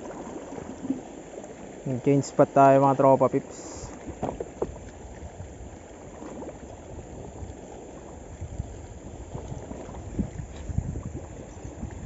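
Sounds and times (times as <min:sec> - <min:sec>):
water splashing against rocks: 0:00.0 - 0:12.0
wind on microphone: 0:03.5 - 0:12.0.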